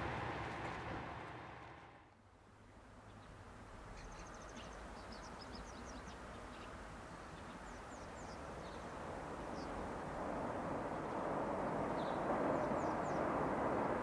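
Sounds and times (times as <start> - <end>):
low rumble: 0.0 - 2.1
small birds twittering: 4.0 - 6.8.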